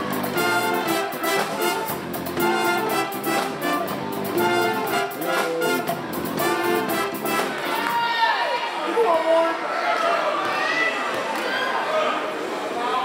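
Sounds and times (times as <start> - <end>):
drum kit beat: 0.0 - 8.0
pep band playing: 0.0 - 8.2.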